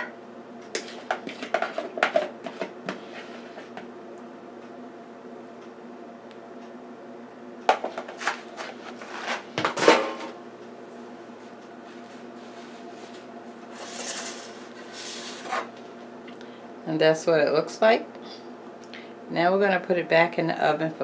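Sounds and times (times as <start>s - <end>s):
faint steady hum: 0.0s - 21.0s.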